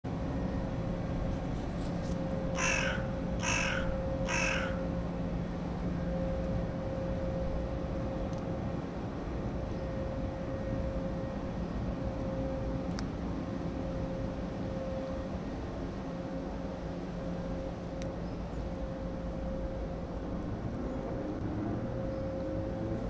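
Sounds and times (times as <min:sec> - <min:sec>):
low background hum: 0:00.1 - 0:23.0
crow cawing: 0:02.6 - 0:04.9.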